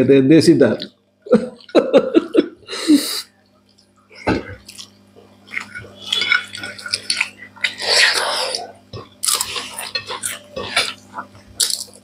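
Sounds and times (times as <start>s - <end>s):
chewing: 3.5s - 12.0s.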